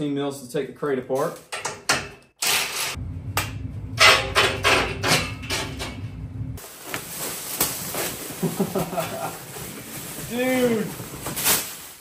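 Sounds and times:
low rumble: 0:03.0 - 0:06.6.

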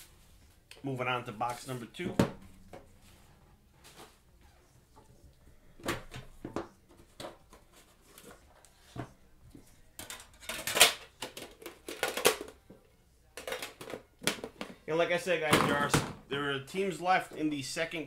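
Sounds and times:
box and tin clicking and knocking: 0:10.0 - 0:12.6.

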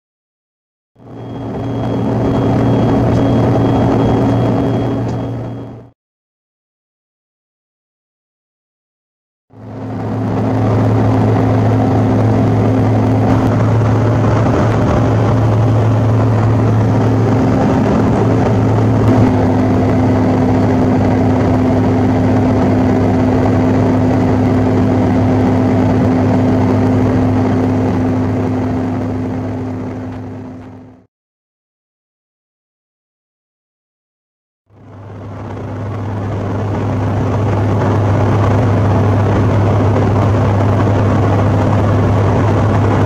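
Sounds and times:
aircraft cabin air rush: 0:01.0 - 0:05.8, 0:09.6 - 0:30.9, 0:34.8 - 0:43.0
jet engines humming: 0:01.0 - 0:06.0, 0:09.5 - 0:31.1, 0:34.8 - 0:43.0.

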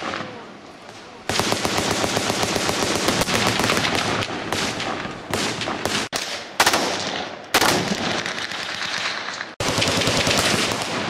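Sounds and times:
rapid automatic gunfire: 0:01.3 - 0:07.0, 0:09.6 - 0:11.0.

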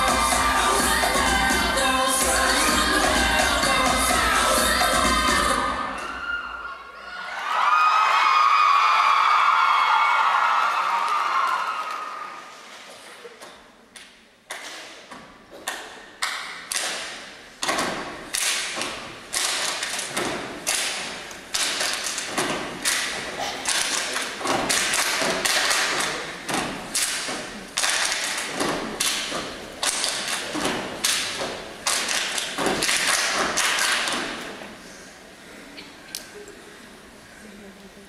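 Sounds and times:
hand claps: 0:13.9 - 0:15.0, 0:15.6 - 0:34.4
foot stomps on wooden stage: 0:24.4 - 0:34.4.

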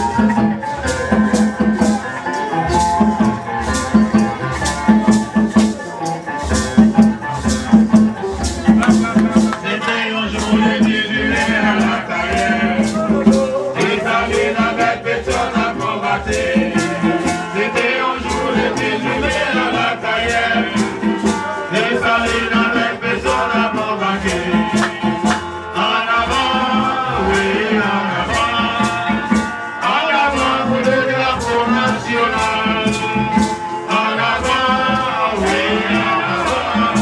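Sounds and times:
rattling shaker beat: 0:00.0 - 0:37.0
person singing: 0:08.8 - 0:37.0.

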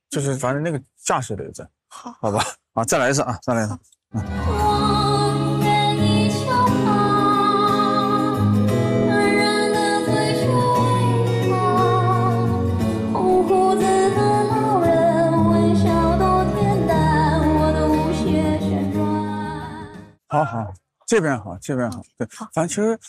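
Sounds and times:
instrumental backing music: 0:04.2 - 0:20.6
woman singing into a microphone: 0:04.3 - 0:20.0.

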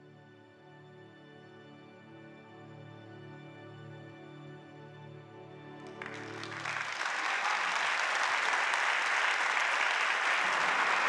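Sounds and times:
audience applauding: 0:05.8 - 0:11.0.

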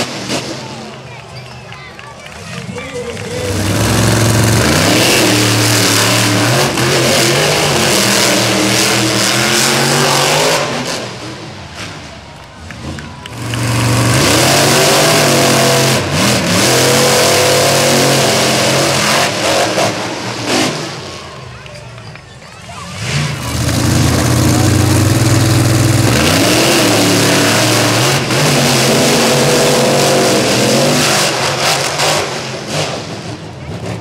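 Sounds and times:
monster truck engine revving: 0:00.0 - 0:01.3, 0:02.0 - 0:34.0.

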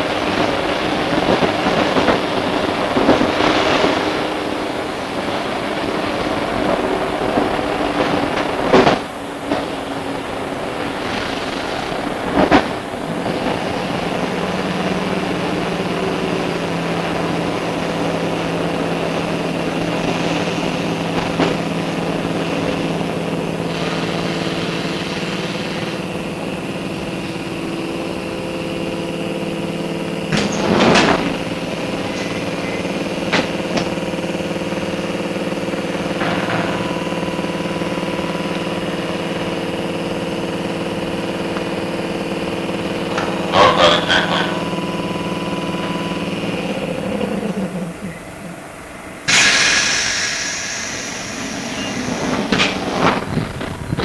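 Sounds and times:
train electrical equipment hum: 0:00.0 - 0:54.0
loud clunk: 0:30.3 - 0:31.4, 0:36.2 - 0:37.4, 0:49.3 - 0:54.0.

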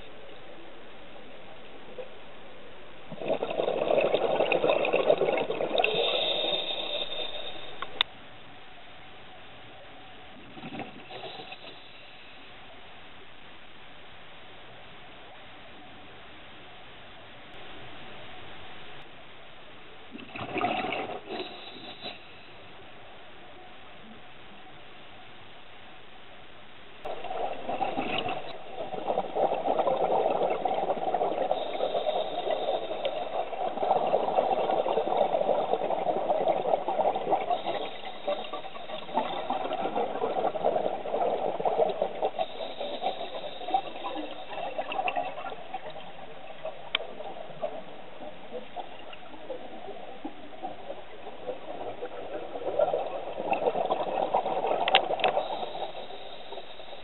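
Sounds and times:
underwater bubbling of exhaled air: 0:03.1 - 0:08.0, 0:10.3 - 0:12.3, 0:20.1 - 0:22.5, 0:27.0 - 0:57.0.

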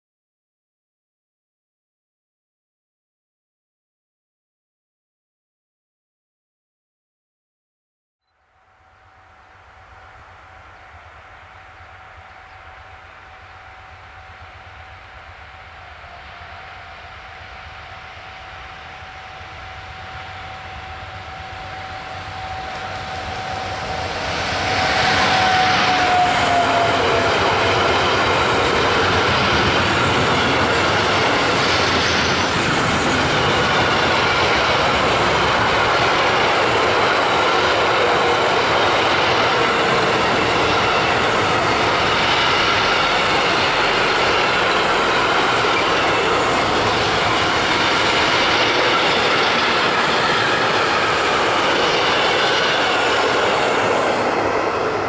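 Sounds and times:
freight train wheels rushing on rail: 0:08.5 - 0:55.0
locomotive whine falling in pitch: 0:09.6 - 0:31.3.

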